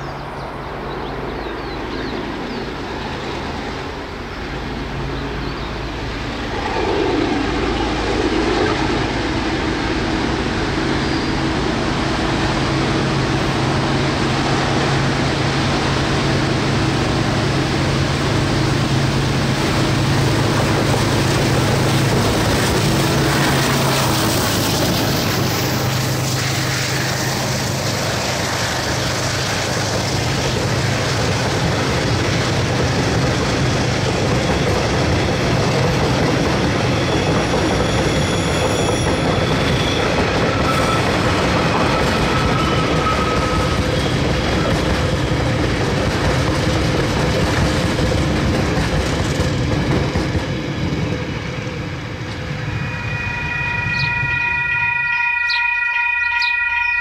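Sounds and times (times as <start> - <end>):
train wheels rumbling on rails: 0.0 - 55.7
train wheel squeals: 21.0 - 45.6, 50.0 - 57.0.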